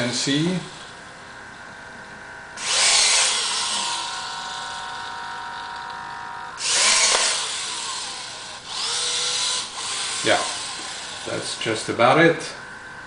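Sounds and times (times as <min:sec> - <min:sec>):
electric gear motor whining: 0:02.6 - 0:11.6.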